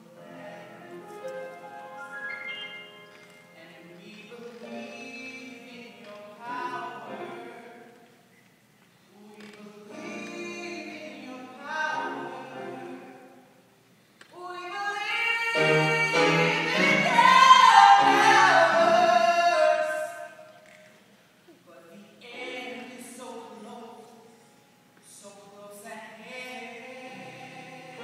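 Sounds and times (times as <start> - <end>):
piano accompaniment: 0.0 - 4.0, 15.5 - 19.6
ensemble singing: 9.2 - 13.7.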